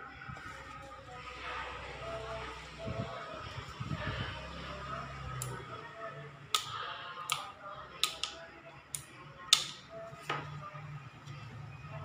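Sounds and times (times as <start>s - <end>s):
clicks and taps on plastic tool body: 8.0s - 8.4s.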